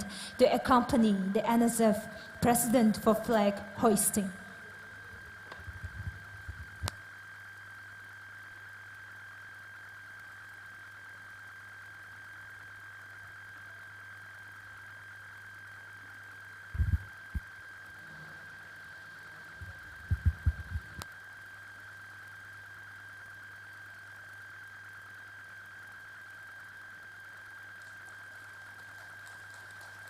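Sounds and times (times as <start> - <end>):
high-pitched electronic whine: 3.6 - 28.6
low hum: 16.6 - 21.1
dull low thumps: 16.8 - 17.4, 19.6 - 21.0.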